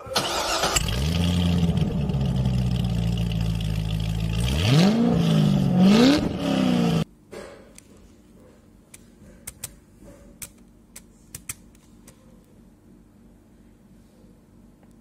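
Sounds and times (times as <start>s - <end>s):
car engine starting and idling: 0.0s - 7.0s
car engine revving: 0.4s - 7.1s.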